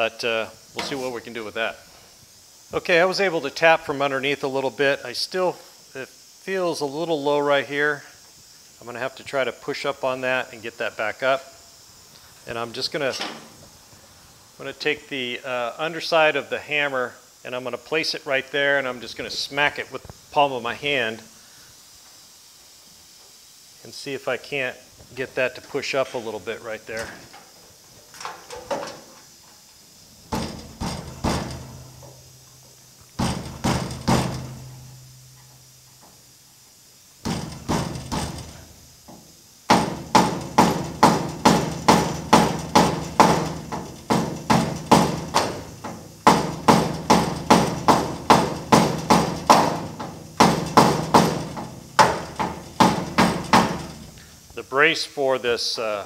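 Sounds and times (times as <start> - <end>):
hammer on sheet metal: 30.3 - 31.7, 33.2 - 34.7, 37.2 - 38.6, 39.7 - 54.0.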